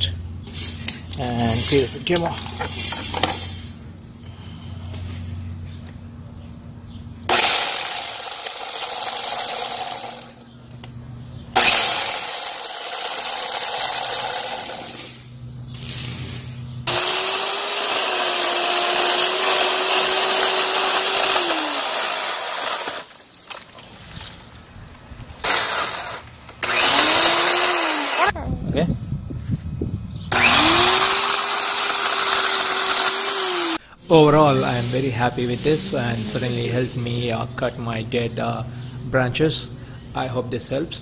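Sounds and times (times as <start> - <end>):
electric chainsaw cutting branches: 7.3 - 10.5, 11.5 - 15.3, 16.9 - 23.7, 25.4 - 28.4, 30.3 - 33.8.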